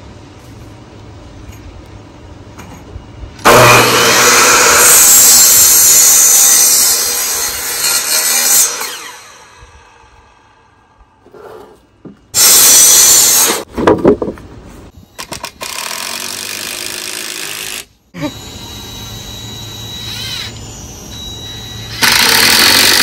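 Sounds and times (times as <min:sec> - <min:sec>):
miter saw cutting wood: 0:03.4 - 0:10.1, 0:15.6 - 0:23.0.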